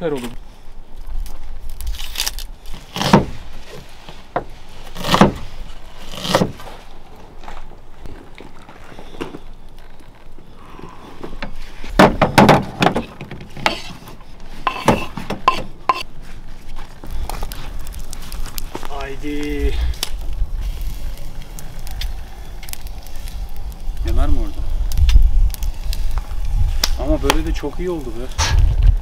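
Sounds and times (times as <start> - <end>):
onion skin peeling: 1.2 - 3.9.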